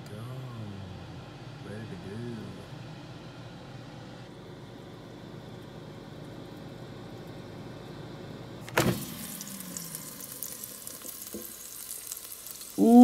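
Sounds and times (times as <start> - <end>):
air fryer fan humming: 0.0 - 13.0
food sizzling and crackling: 8.8 - 13.0.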